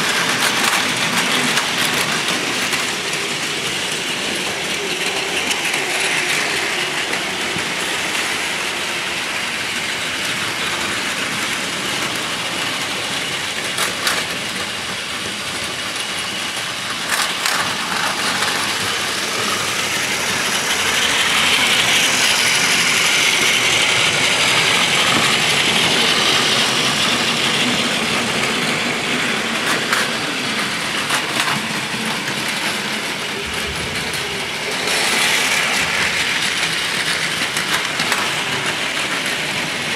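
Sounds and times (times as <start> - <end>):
toy train motors whirring: 0.0 - 39.9
wheels rattling on plastic track: 0.0 - 39.9.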